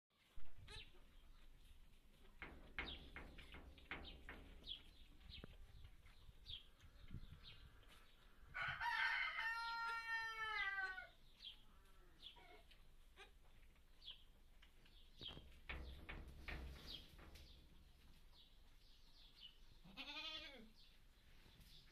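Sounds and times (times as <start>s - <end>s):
rooster crowing: 8.5s - 11.1s.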